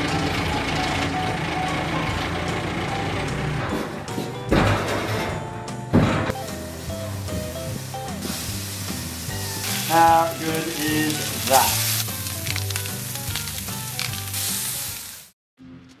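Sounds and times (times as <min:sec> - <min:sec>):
music: 0:00.0 - 0:16.0
steaks sizzling on a hot plate: 0:06.4 - 0:15.3.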